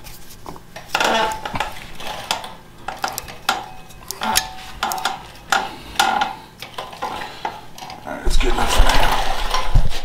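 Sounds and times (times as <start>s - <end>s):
pliers clinking on metal: 2.3s - 6.7s.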